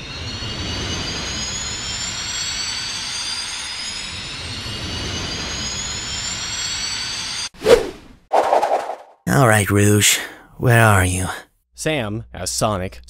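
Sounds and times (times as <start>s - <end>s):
jet engine whine rising in pitch: 0.0s - 7.5s.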